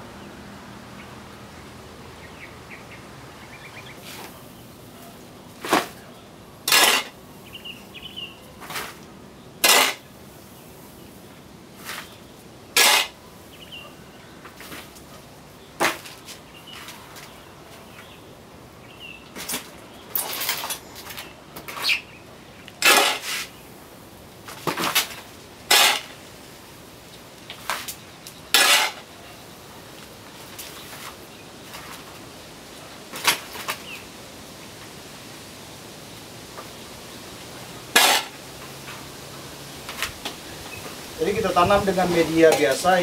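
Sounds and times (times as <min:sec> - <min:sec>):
shovel scraping potting mix: 0:04.0 - 0:07.2, 0:08.6 - 0:10.1, 0:11.7 - 0:13.2, 0:22.7 - 0:23.6, 0:24.5 - 0:26.3, 0:27.4 - 0:29.2, 0:37.9 - 0:39.0, 0:39.8 - 0:43.0.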